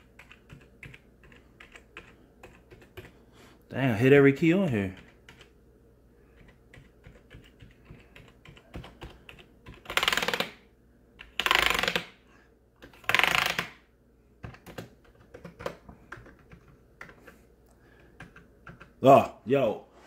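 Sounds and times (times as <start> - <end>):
rapid key mashing: 0.0 - 3.2, 4.8 - 5.5, 6.3 - 10.6, 14.4 - 19.0.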